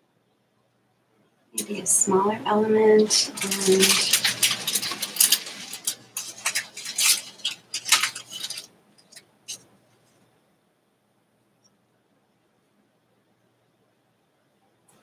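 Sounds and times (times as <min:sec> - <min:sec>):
paper rustling and crinkling: 0:02.6 - 0:10.2.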